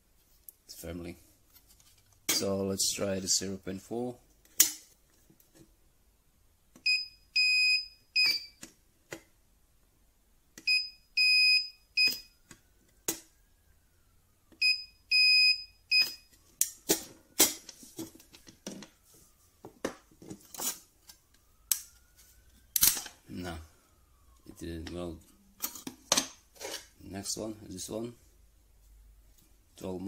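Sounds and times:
high beeps: 14.6 - 16.2.

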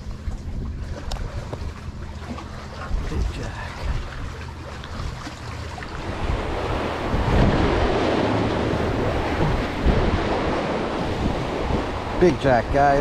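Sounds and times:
sea water wash: 0.0 - 13.0
wind buffeting microphone: 5.0 - 13.0.

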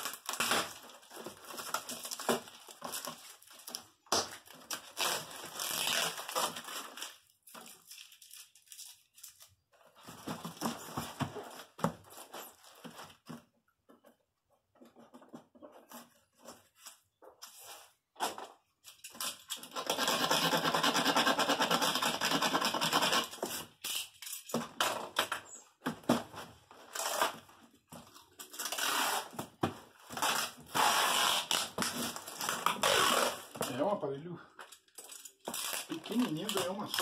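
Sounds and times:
packing tape pulled off roll: 0.0 - 9.5, 18.9 - 25.4, 26.9 - 33.7, 35.0 - 37.0
cardboard flaps scraping and knocking: 10.0 - 13.5.

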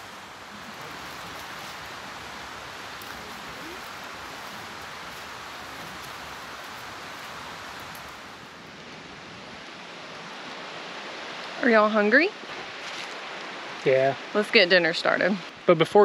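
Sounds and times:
river water rushing: 0.0 - 15.7.

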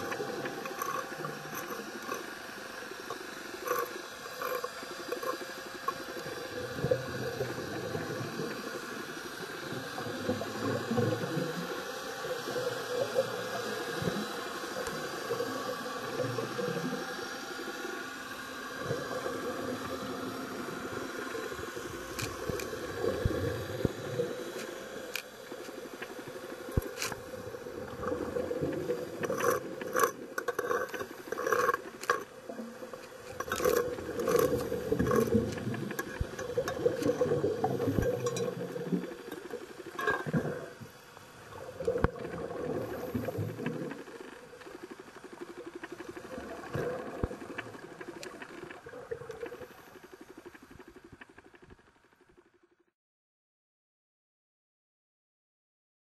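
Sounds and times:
regulator bubbles rumbling underwater: 0.0 - 51.9
steady underwater hiss: 0.0 - 52.6.

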